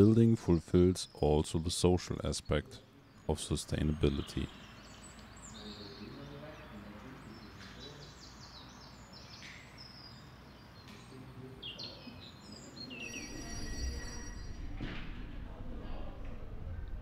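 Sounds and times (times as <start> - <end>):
songbirds chirping: 0.0 - 17.0
steady background hiss: 0.0 - 17.0
low rumble: 13.6 - 17.0.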